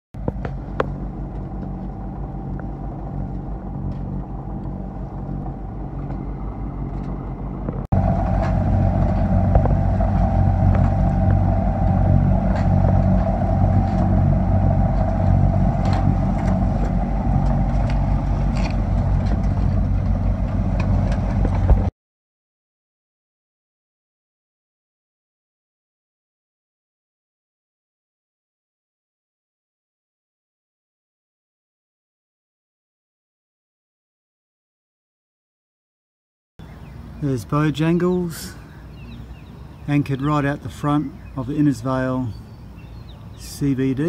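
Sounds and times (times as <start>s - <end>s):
boat engine droning: 0.2s - 21.9s, 36.6s - 44.0s.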